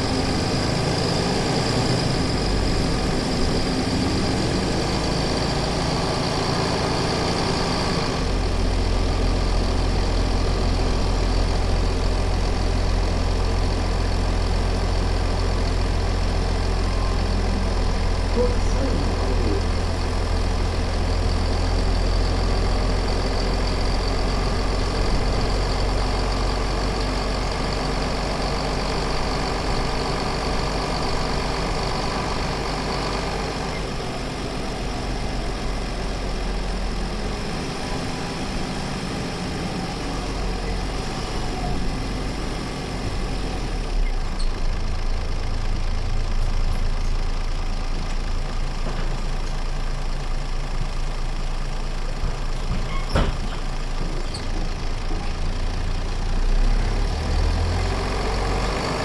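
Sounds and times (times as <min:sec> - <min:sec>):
bus engine running: 0:00.0 - 0:59.0
strong low drone: 0:08.3 - 0:27.6.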